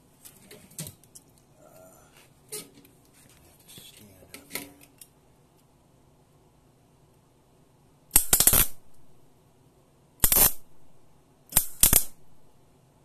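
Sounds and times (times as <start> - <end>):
soft rustling: 2.0 - 4.5.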